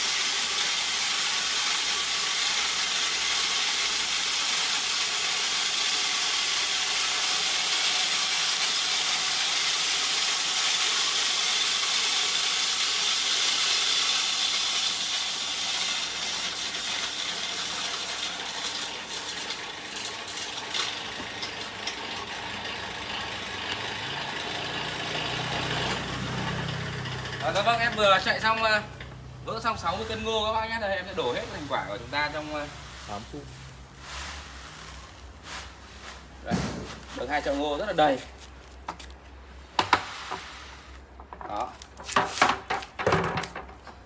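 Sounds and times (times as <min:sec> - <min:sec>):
mill cracking corn: 0:00.0 - 0:30.4, 0:34.7 - 0:39.1.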